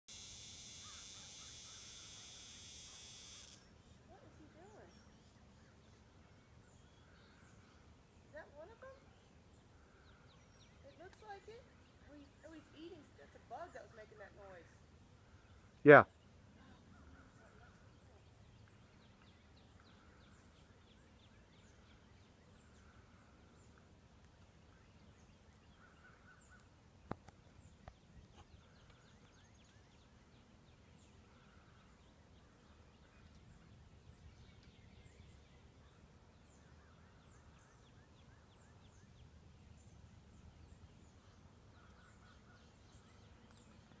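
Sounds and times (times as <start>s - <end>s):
distant bird chirps: 0.1s - 5.8s.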